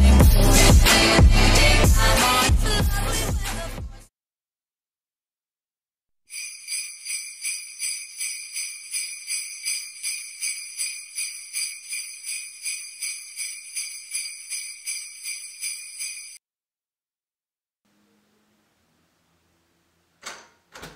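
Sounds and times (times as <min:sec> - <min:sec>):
sleigh bells shaken rhythmically: 0:00.0 - 0:03.6, 0:06.3 - 0:16.4.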